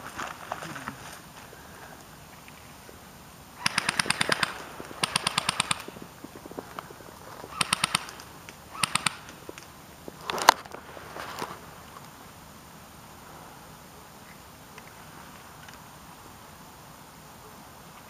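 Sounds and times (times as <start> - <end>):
airsoft rifle bursts: 3.6 - 6.1, 7.5 - 9.4.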